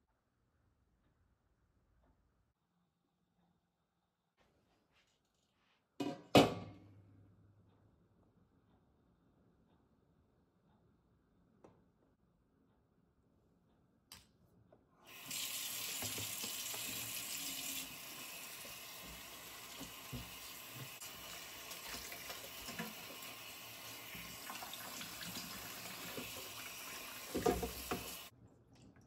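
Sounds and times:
faucet water running into sink: 15.1 - 28.3.

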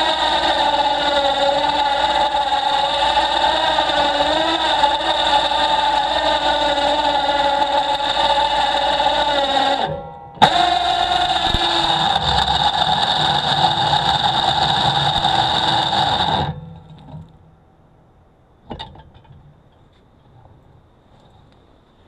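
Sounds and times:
motor humming: 0.0 - 17.3.

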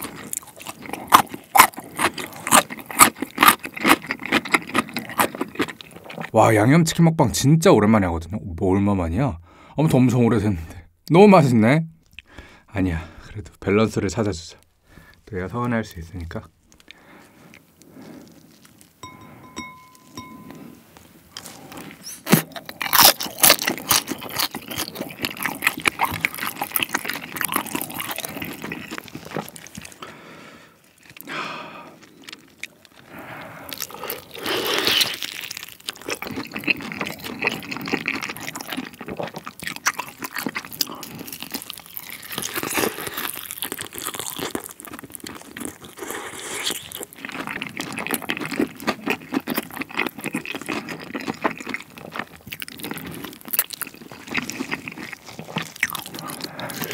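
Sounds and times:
crunching and chewing fried chicken: 0.0 - 6.4, 16.6 - 19.0, 21.3 - 56.9.

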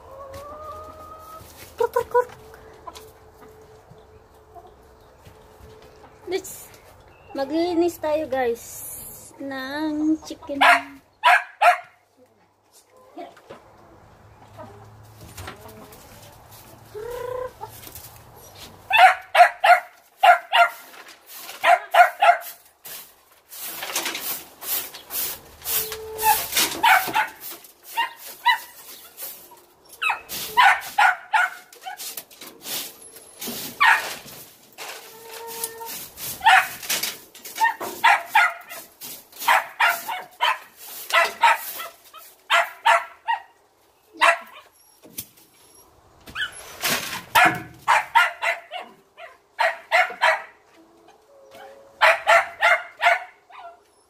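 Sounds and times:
broom sweeping straw: 20.2 - 42.5.

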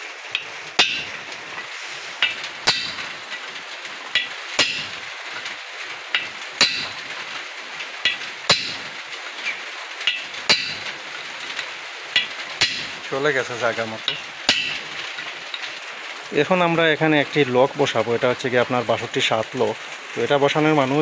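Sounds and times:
hammer striking steel chisel: 0.8 - 1.2, 2.2 - 3.1, 4.2 - 5.0, 6.2 - 7.0, 8.1 - 8.9, 10.1 - 11.0, 12.2 - 13.0, 14.1 - 14.9.

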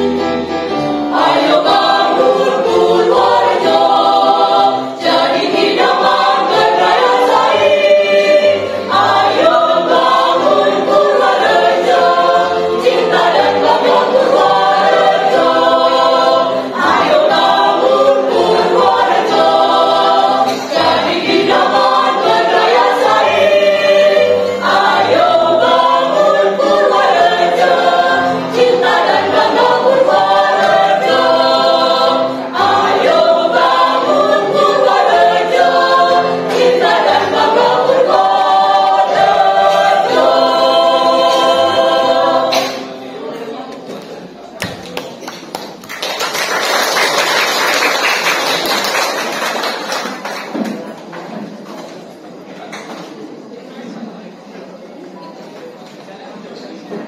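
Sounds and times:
mixed choir singing a march: 0.0 - 43.3.

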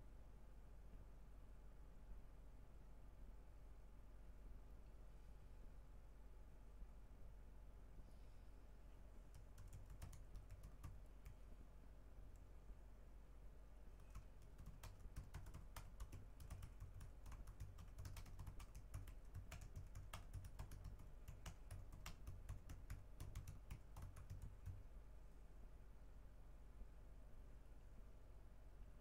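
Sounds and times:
faint low hum: 0.0 - 29.0
keyboard typing: 9.3 - 11.4, 14.0 - 24.9.

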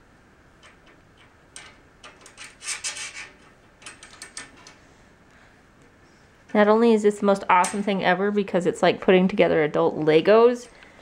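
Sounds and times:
metal screws scraping on metal rail: 0.6 - 4.8.

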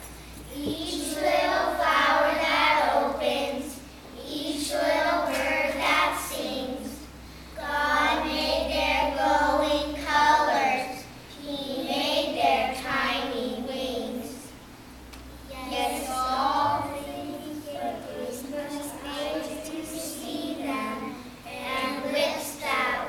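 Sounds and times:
children singing in unison: 0.6 - 3.7.

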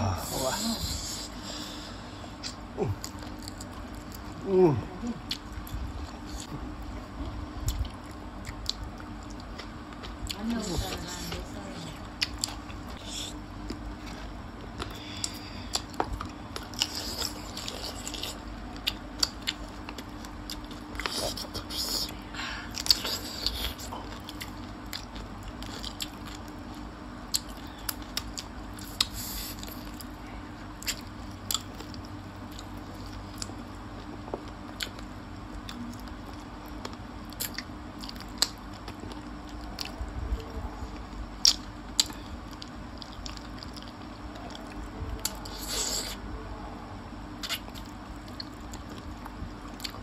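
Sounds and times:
chewing with wet smacks: 2.4 - 4.4, 5.1 - 46.2, 47.3 - 50.0.

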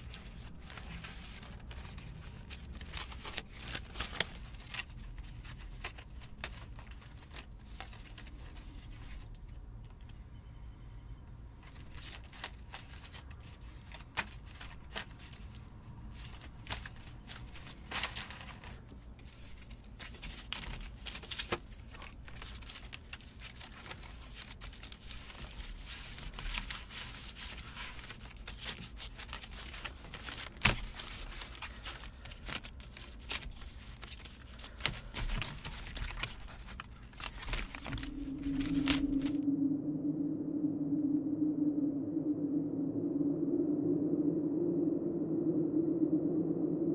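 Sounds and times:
dry leaves crinkling and snapping: 0.0 - 9.2, 20.0 - 39.4.

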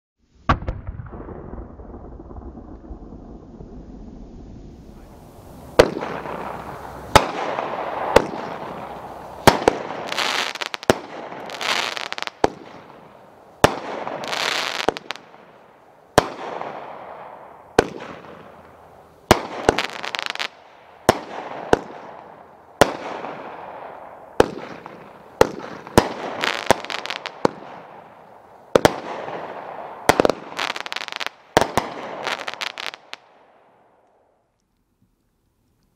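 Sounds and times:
crackling hiss: 0.2 - 35.9
firework cake firing: 4.7 - 28.2.

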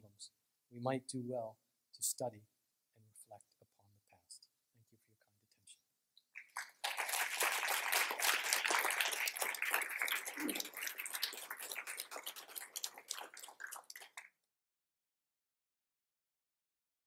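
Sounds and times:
audience applauding: 6.4 - 14.3.

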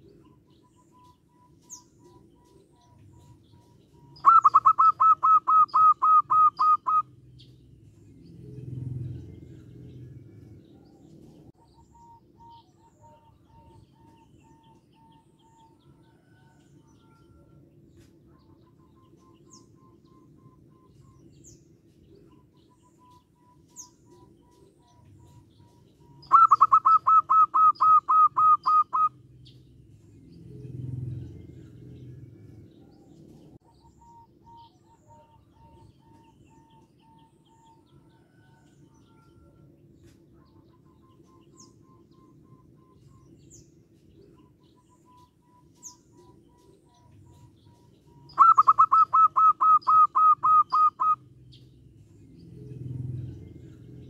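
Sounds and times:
dove staccato calls: 0.0 - 7.1, 26.2 - 29.6, 45.7 - 51.2
dove low coo: 0.0 - 7.2, 8.2 - 43.5, 44.1 - 51.3.

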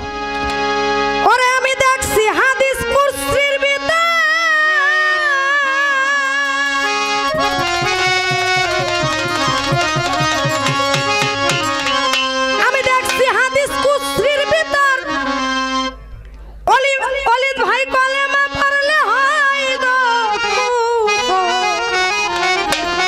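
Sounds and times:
sustained wavering melody: 6.0 - 14.5
hand drums quick beat: 7.2 - 13.6.

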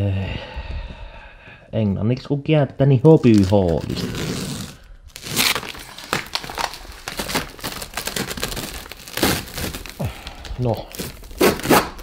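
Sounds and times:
plastic mailer crinkling: 3.1 - 12.0.

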